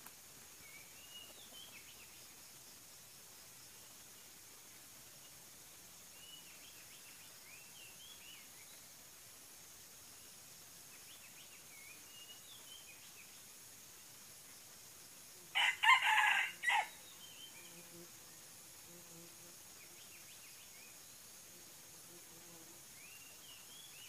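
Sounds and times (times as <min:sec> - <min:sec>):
small birds chirping: 0:00.5 - 0:02.6, 0:05.1 - 0:09.1, 0:10.0 - 0:14.2, 0:22.4 - 0:24.0
rooster crowing: 0:15.5 - 0:17.0.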